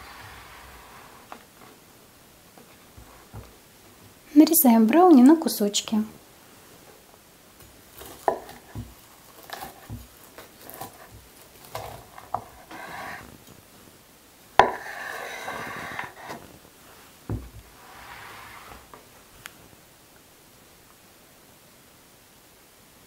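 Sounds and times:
knife knocking on wooden board: 8.3 - 8.9, 14.6 - 14.9, 17.3 - 17.6
knife blade scraping: 11.8 - 13.2, 14.6 - 16.4.

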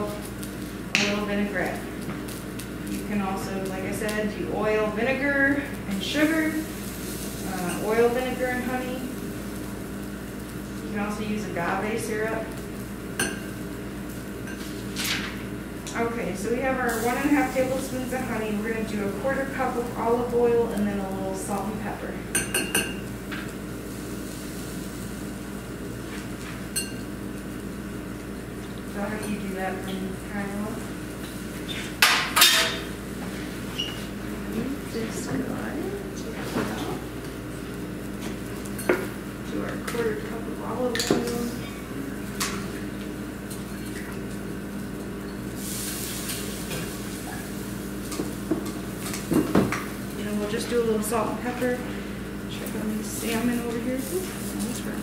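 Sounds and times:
food sizzling: 0.0 - 55.0
low machine hum: 0.0 - 55.0.

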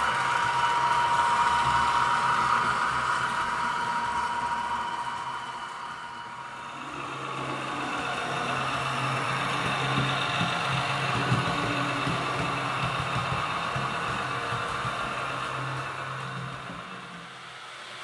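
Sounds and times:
model train wheel rumble: 0.0 - 18.0.

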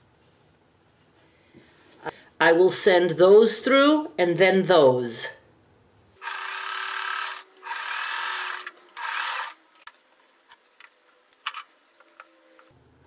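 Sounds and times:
sewing machine stitching: 6.2 - 9.6.

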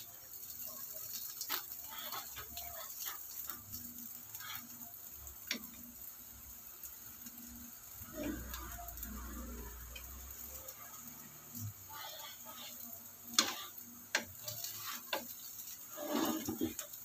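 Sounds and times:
pancake sizzling in pan: 0.0 - 17.0
spatula scraping and tapping pan: 1.1 - 4.8, 5.4 - 5.8, 11.5 - 17.0.

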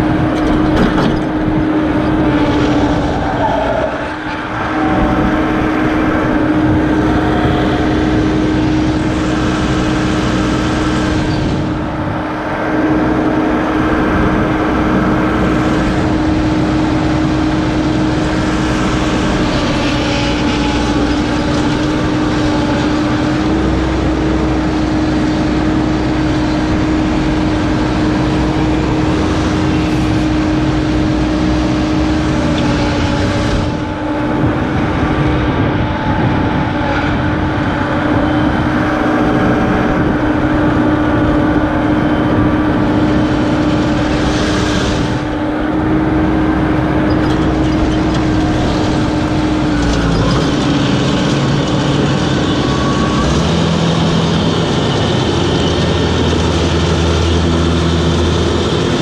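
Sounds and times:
ride-on mower running: 12.8 - 35.9, 37.3 - 59.0.

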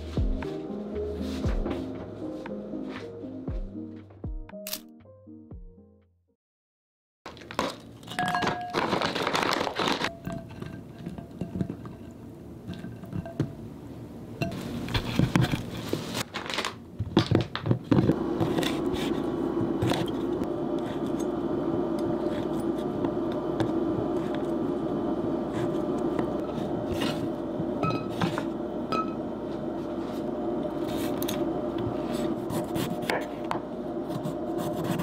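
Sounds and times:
steady hum: 18.0 - 35.0.

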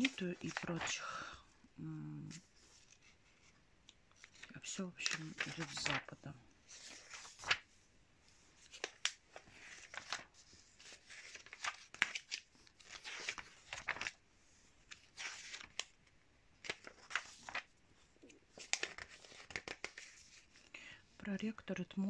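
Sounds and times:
magazine pages rustling: 0.0 - 1.0, 2.3 - 20.6
crisp page flicks and snaps: 11.0 - 14.2, 16.6 - 17.7, 18.5 - 20.4.

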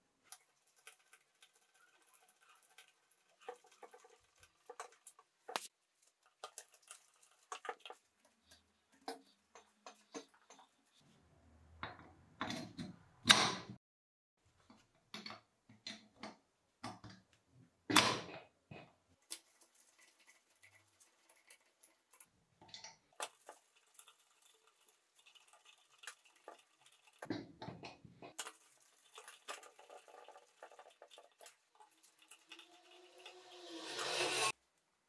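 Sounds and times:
scraping and ticking: 0.3 - 11.0, 19.2 - 22.3, 23.2 - 27.3, 28.3 - 34.6.

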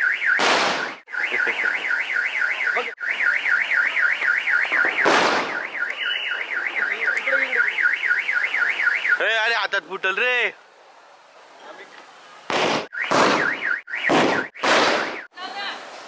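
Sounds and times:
car alarm warbling: 0.0 - 9.6, 12.9 - 15.4
firecracker bangs: 0.3 - 1.6, 4.6 - 5.7, 12.5 - 15.3.

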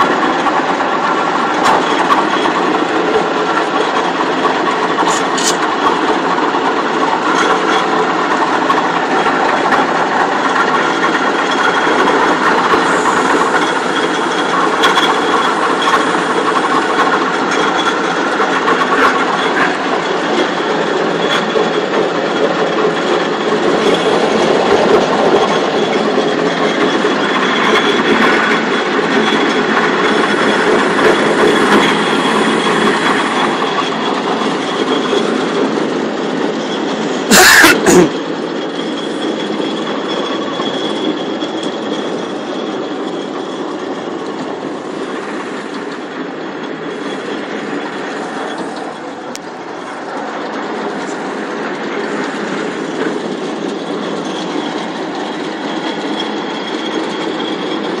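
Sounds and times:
combine harvester clattering: 0.0 - 58.0
loud burst of noise: 8.8 - 39.7.

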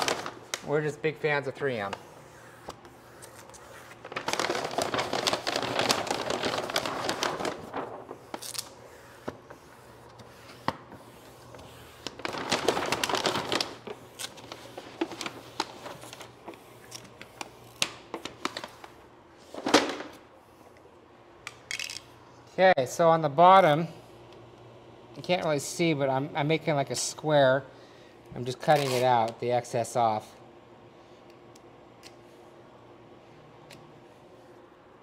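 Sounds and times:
vinyl film crinkling and scraping: 2.8 - 19.0.

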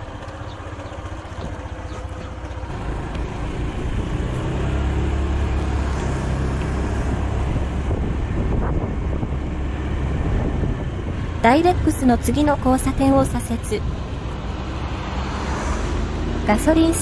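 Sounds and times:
road noise: 0.0 - 17.0
scooter engine accelerating: 0.0 - 17.0
wind on microphone: 6.0 - 14.2.

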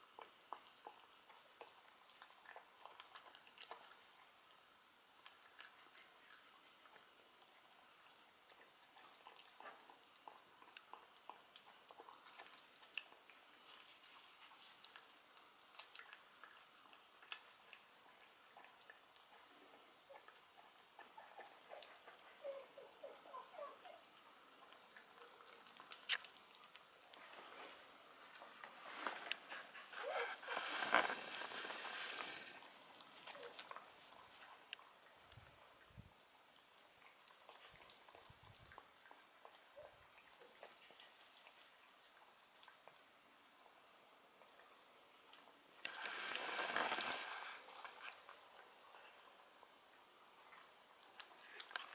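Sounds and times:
puppy licking and chewing: 0.0 - 23.7, 24.6 - 35.6, 36.9 - 43.8.

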